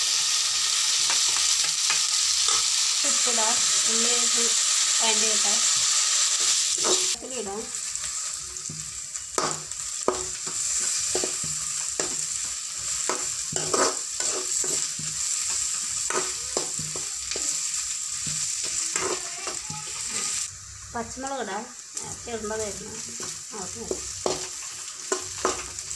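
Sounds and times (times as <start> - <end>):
onions sizzling in hot oil: 0.0 - 25.9
metal spatula scraping pan: 10.1 - 17.4.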